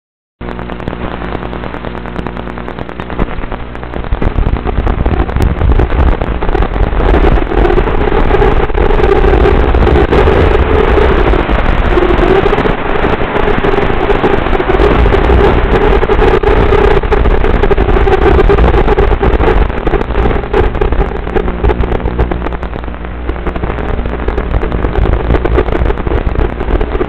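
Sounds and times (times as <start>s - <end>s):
small drone propellers buzzing: 5.1s - 22.4s.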